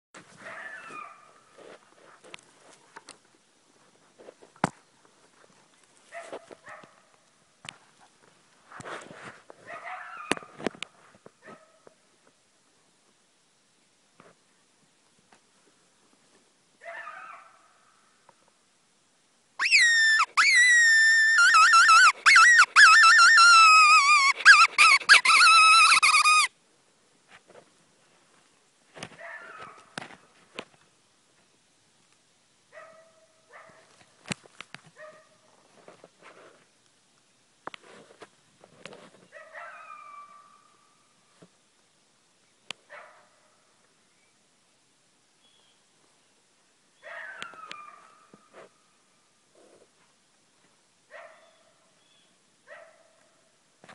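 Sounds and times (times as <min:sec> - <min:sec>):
coyote barking: 0:00.4 - 0:01.4, 0:09.6 - 0:10.6, 0:16.8 - 0:17.8, 0:19.6 - 0:26.5, 0:29.2 - 0:29.9, 0:39.4 - 0:40.8, 0:47.0 - 0:48.4
wavering squealing distress cry: 0:19.6 - 0:26.5.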